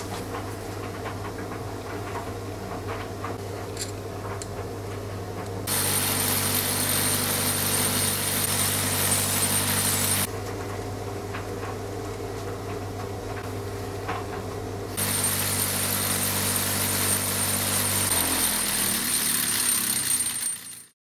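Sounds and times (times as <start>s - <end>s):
bench polisher motor hum: 5.7s - 10.3s.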